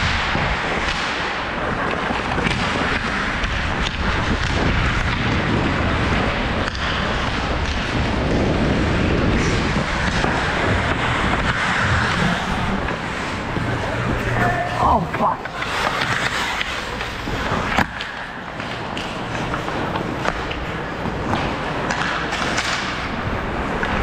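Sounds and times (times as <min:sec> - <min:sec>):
wind rushing over microphone: 0:00.0 - 0:16.3
skate blades scraping ice: 0:00.1 - 0:24.0.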